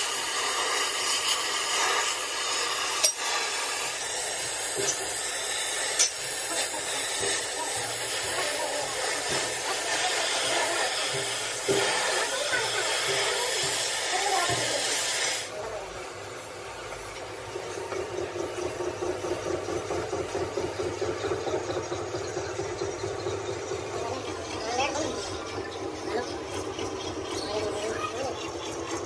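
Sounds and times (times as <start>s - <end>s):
hissing workshop noise: 0.0s - 29.0s.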